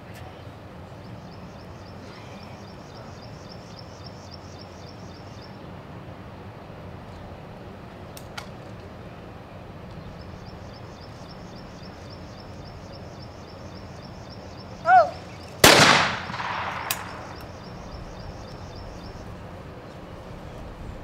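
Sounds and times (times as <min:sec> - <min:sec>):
steady low hum: 0:00.0 - 0:21.0
shotgun closing clicks: 0:15.6 - 0:17.5.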